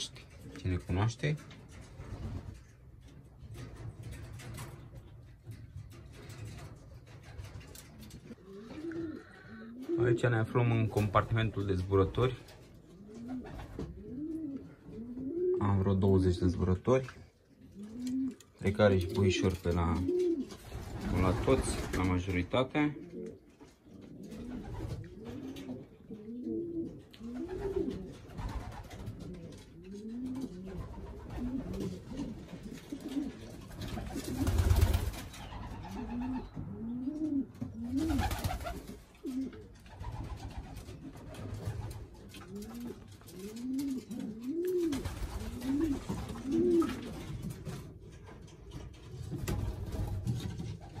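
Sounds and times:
pigeons cooing: 7.1 - 15.8, 17.4 - 21.6, 22.8 - 49.0.

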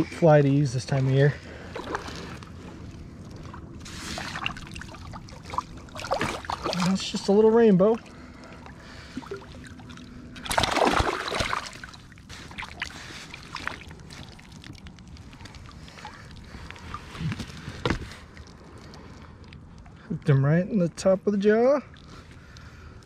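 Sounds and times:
fish splashing at surface: 3.8 - 7.0, 8.8 - 17.1.

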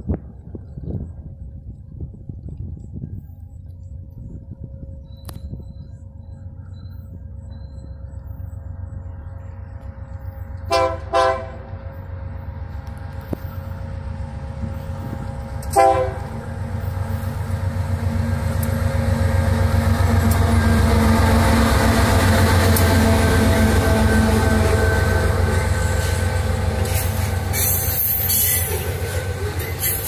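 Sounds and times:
locomotive engine rumble: 0.0 - 30.0
train horn blasts: 10.6 - 12.0, 15.6 - 16.5, 20.2 - 29.2.

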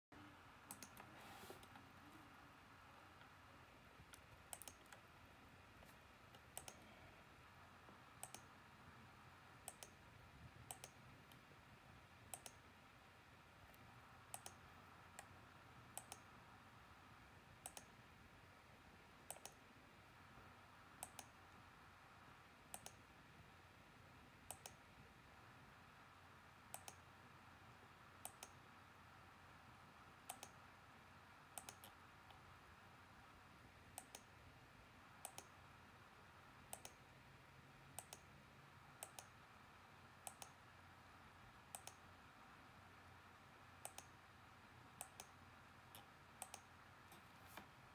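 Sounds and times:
computer mouse clicks: 0.7 - 1.9, 4.1 - 5.1, 5.8 - 6.9, 8.2 - 8.5, 9.6 - 10.0, 10.6 - 11.4, 12.3 - 12.6, 13.7 - 16.3, 17.6 - 18.0, 19.3 - 19.6, 21.0 - 21.4, 22.7 - 23.0, 24.5 - 24.8, 26.7 - 27.1, 28.2 - 28.6, 30.2 - 30.6, 31.5 - 32.4, 33.9 - 34.4, 35.2 - 35.6, 36.7 - 37.1, 37.9 - 38.3, 39.0 - 39.4, 40.2 - 40.6, 41.7 - 42.1, 43.8 - 44.2, 45.0 - 47.7.

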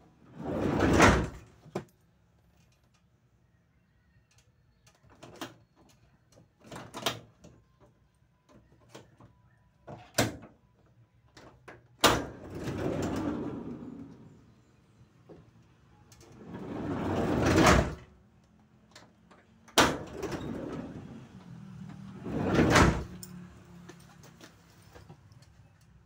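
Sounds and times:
sliding door rumbling along track: 0.3 - 1.5, 12.0 - 14.4, 16.2 - 18.1, 19.8 - 23.2.

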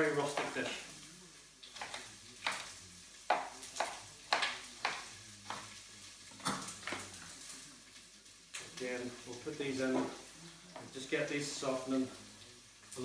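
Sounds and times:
knife chopping on cutting board: 3.3 - 5.7.

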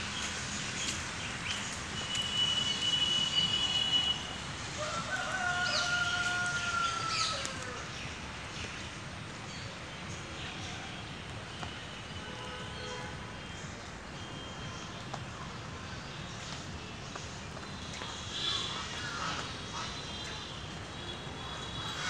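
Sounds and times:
rooster crowing: 4.8 - 7.7.

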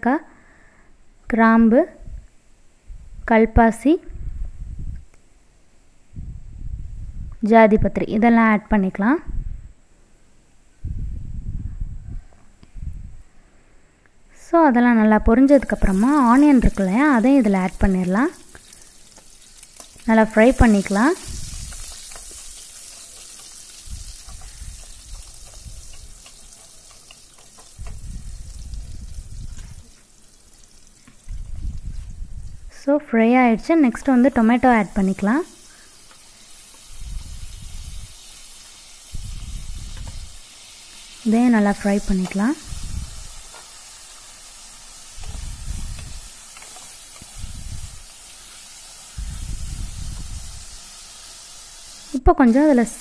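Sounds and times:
onions sizzling in oil: 15.4 - 53.0
wooden spatula stirring in pot: 15.9 - 31.4, 41.8 - 49.2
spoon scraping a pan: 20.7 - 28.0, 45.1 - 49.0
low rumbling: 27.8 - 29.9, 31.3 - 32.8.

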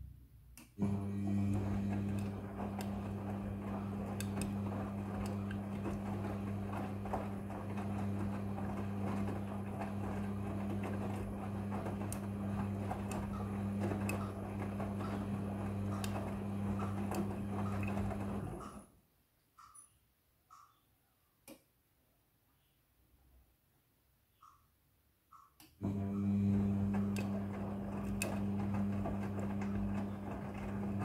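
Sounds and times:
washing machine motor hum: 0.8 - 18.9, 25.8 - 31.0.

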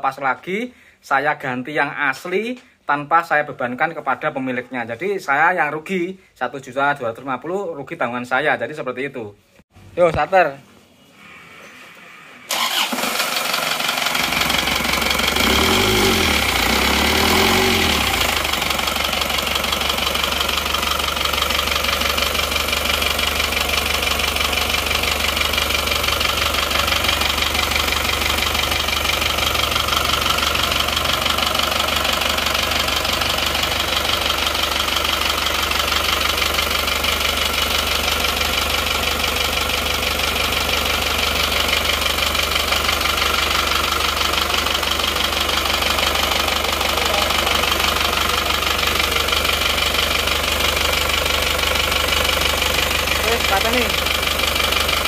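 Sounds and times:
diesel engine starting and idling: 11.2 - 55.0.

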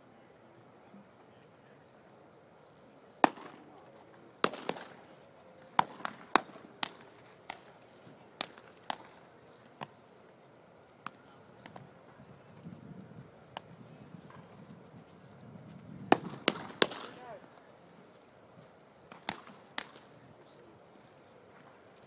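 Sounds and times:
baseballs smacking into mitts: 3.2 - 10.0, 11.0 - 11.9, 13.5 - 13.7, 16.1 - 17.4, 19.1 - 20.1.

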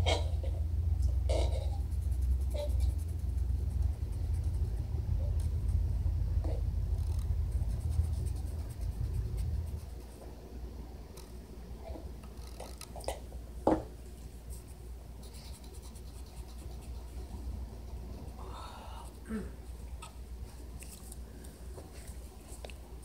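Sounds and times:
low rumble: 0.0 - 11.0
marker scratching on paper: 1.3 - 4.7, 7.0 - 10.2, 14.5 - 17.3.

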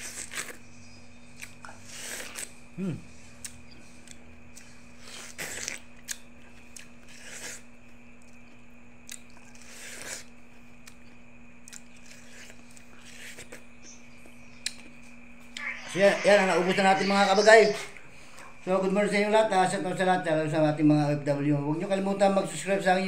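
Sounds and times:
person chewing watermelon: 0.0 - 15.6
faint steady hum: 0.0 - 23.0.

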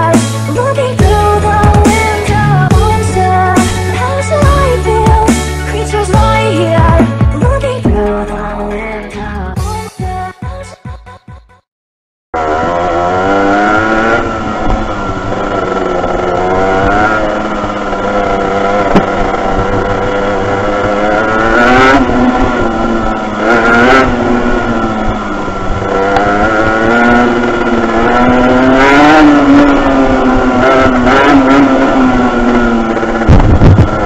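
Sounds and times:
two-stroke engine revving: 0.0 - 8.6, 12.4 - 34.0.

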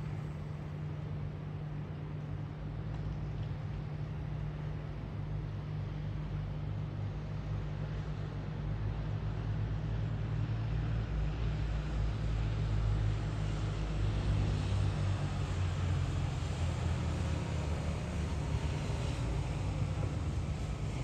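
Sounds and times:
road traffic rumble: 0.0 - 0.7, 11.3 - 21.0
vehicles passing slowly: 10.0 - 21.0.

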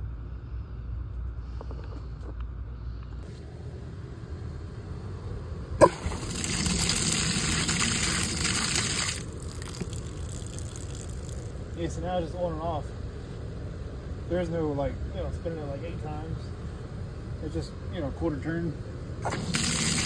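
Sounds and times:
water gushing and splashing: 5.8 - 11.5, 19.2 - 20.0.

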